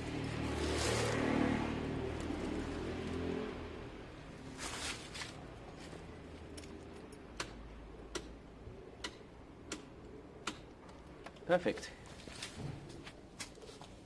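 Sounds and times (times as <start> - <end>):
wires rustling: 0.0 - 3.2, 4.2 - 7.1.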